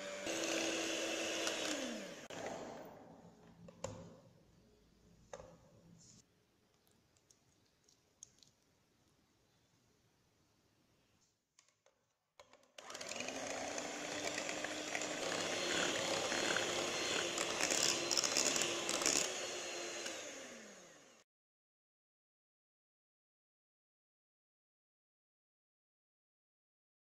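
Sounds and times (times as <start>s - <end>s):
electric hand mixer whirring: 0.0s - 2.8s, 12.8s - 21.2s.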